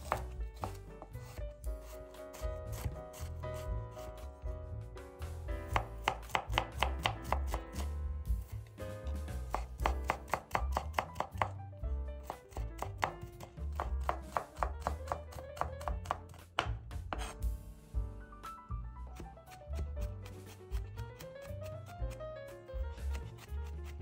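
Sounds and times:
knife chopping on wooden board: 0.0s - 4.3s, 5.7s - 11.6s, 12.2s - 17.4s, 19.2s - 22.2s
quiet background music: 0.0s - 24.0s.

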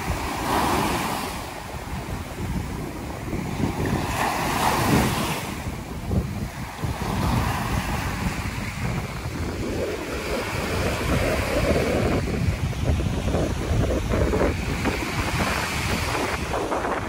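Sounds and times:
waves breaking on sand: 0.0s - 17.0s
wind buffeting microphone: 0.0s - 17.0s.

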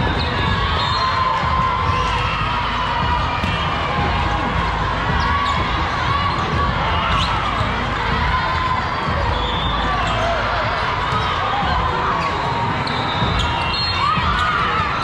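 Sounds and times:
sneakers squeaking: 0.0s - 4.3s, 5.0s - 8.0s, 8.6s - 15.0s
crowd chattering: 0.0s - 15.0s
volleyballs hit and bouncing: 1.4s - 7.6s.

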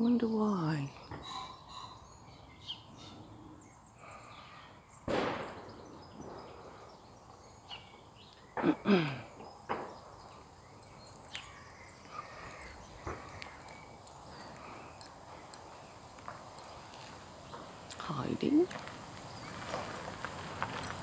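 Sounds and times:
distant gunshots: 5.1s - 6.5s.

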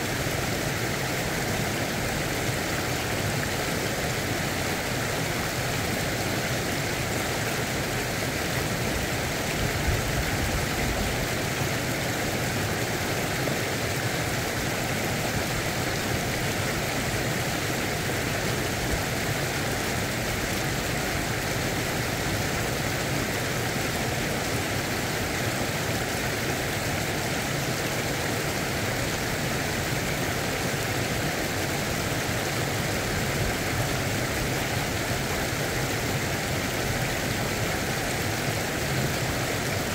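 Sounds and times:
stream water pouring over weir: 0.0s - 39.9s.

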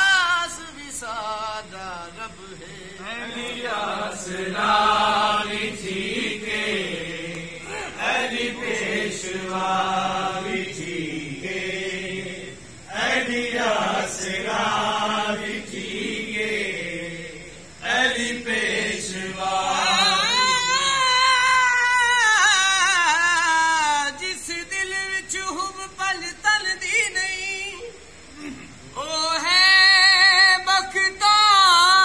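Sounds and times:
person singing chant-like phrases: 0.0s - 22.2s.

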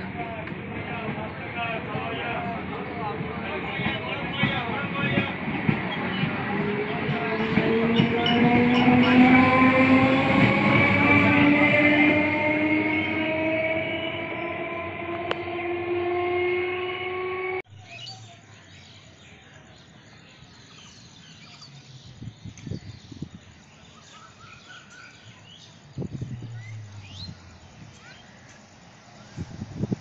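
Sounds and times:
train traction motors whining: 0.0s - 17.6s, 25.7s - 30.0s
birds chirping: 0.0s - 29.9s
low rumbles: 25.4s - 30.0s.

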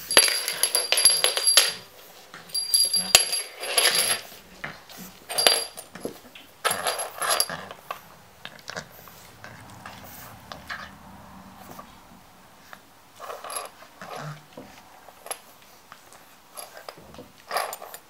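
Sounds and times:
small bell jingling: 0.0s - 1.8s, 2.5s - 4.3s.

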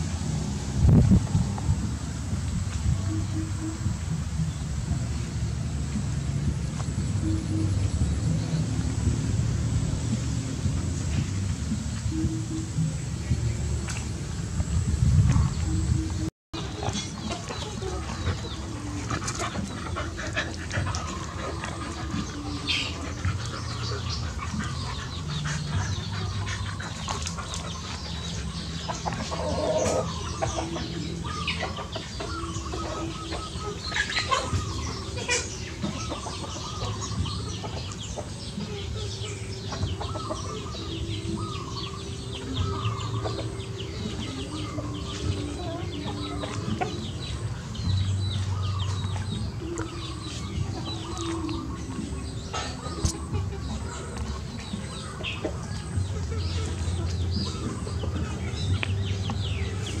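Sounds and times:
dogs growling: 16.6s - 38.6s.

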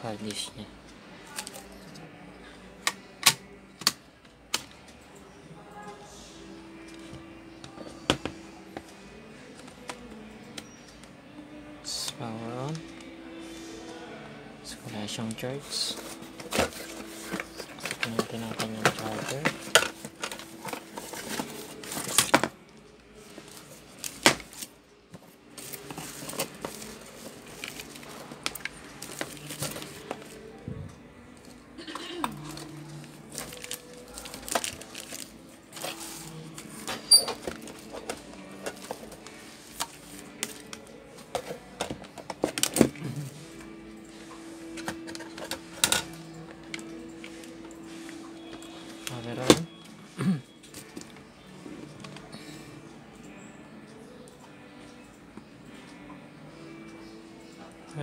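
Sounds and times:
cable rustling: 32.3s - 43.0s.

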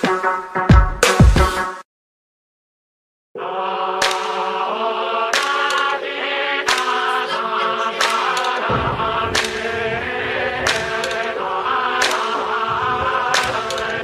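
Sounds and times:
choir-like sustained singing: 3.4s - 14.0s.

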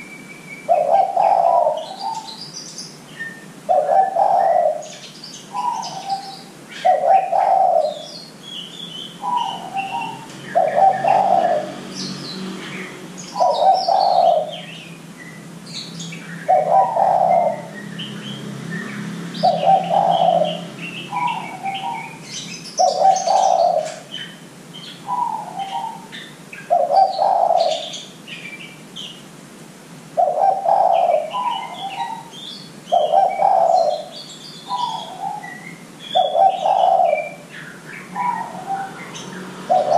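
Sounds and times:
small birds chirping: 0.0s - 29.3s, 30.1s - 39.9s
dove cooing: 0.7s - 2.5s, 3.3s - 8.2s, 9.2s - 14.8s, 16.4s - 17.8s, 19.3s - 24.4s, 25.0s - 28.0s, 30.2s - 39.9s.

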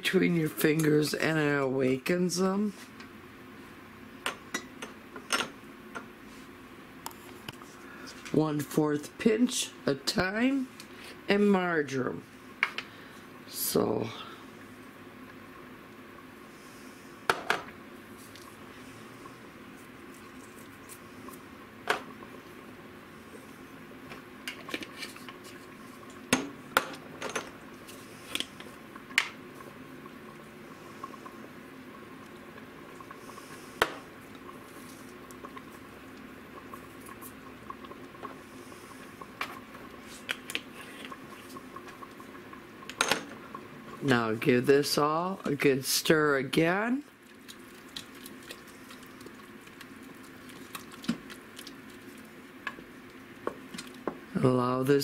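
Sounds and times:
faint steady hum: 0.0s - 55.0s.

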